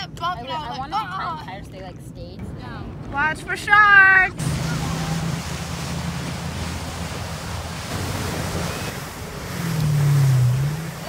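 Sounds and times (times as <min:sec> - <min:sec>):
rushing water: 0:04.2 - 0:11.0
motorboat engine drone: 0:04.4 - 0:11.0.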